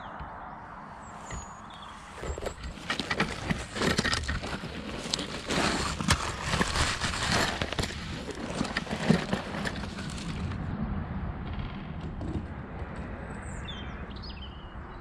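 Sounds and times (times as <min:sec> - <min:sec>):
dry reeds rustling and snapping: 0:01.3 - 0:10.6.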